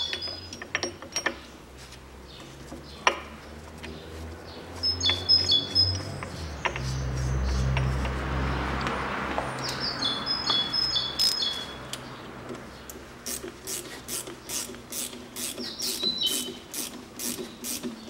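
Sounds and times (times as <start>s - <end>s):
small bird chirping: 3.9s - 7.7s, 9.6s - 11.9s, 15.4s - 16.7s
ratchet wrench clicking: 12.9s - 18.0s.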